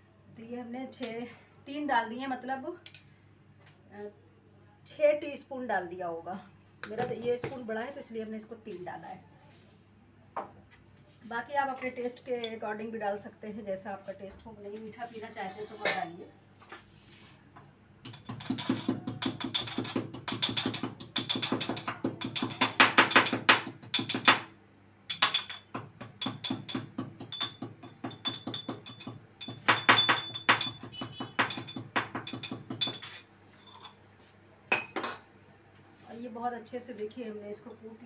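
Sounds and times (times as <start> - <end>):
pestle pounding in steel mortar: 18.0 - 24.5, 25.1 - 33.1.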